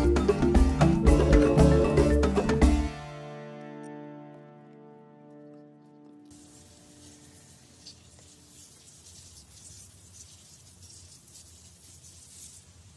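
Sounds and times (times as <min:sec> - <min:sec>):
marimba-like background music: 0:00.0 - 0:05.8
water spraying from hose: 0:06.3 - 0:12.9.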